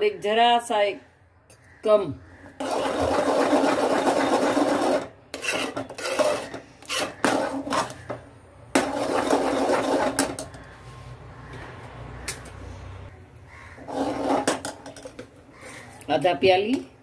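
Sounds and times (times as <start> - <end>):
spoon scraping in a metal pot: 2.6 - 8.0.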